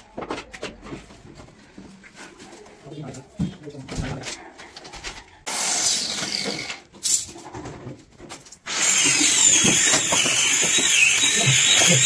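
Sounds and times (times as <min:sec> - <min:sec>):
power tool cutting wood: 0:05.5 - 0:06.8, 0:08.7 - 0:12.0.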